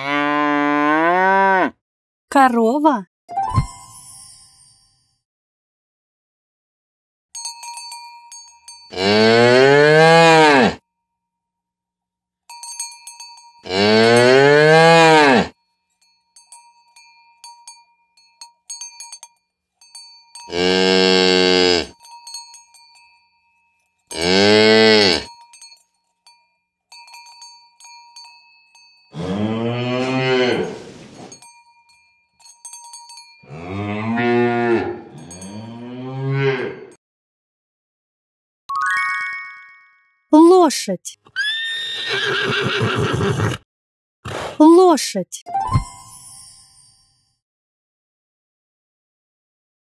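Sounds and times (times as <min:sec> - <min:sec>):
cows mooing: 0:00.0 - 0:01.7, 0:08.9 - 0:10.8, 0:13.6 - 0:15.5, 0:20.5 - 0:21.9, 0:24.1 - 0:25.3, 0:29.2 - 0:31.0, 0:33.5 - 0:37.0
small bell tinkling: 0:03.7 - 0:05.2, 0:07.4 - 0:09.0, 0:12.5 - 0:13.7, 0:15.5 - 0:20.6, 0:21.9 - 0:24.3, 0:25.2 - 0:29.2, 0:31.3 - 0:33.6, 0:35.1 - 0:35.8, 0:45.8 - 0:47.4.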